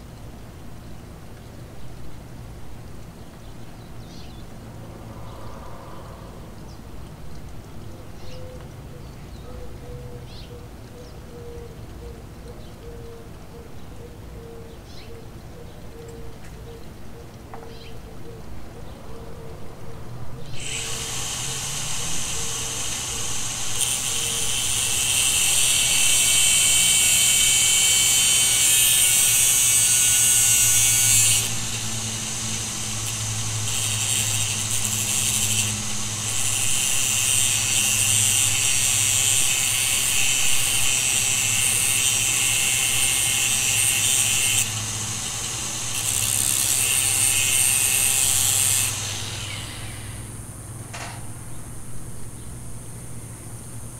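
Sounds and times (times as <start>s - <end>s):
angle grinder cutting metal: 20.5s - 50.3s.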